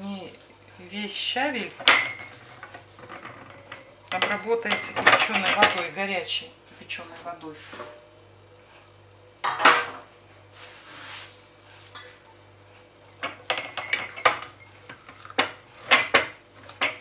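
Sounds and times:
glass jars and steel bowl clinking: 1.6 - 6.0, 13.2 - 15.1, 15.8 - 17.0
loud scrape: 10.6 - 11.4.

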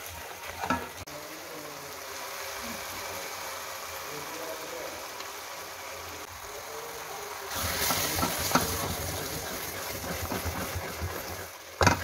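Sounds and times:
curry sizzling and bubbling in a pan: 0.0 - 12.0
spatula scraping and tapping a pan: 7.8 - 12.0.

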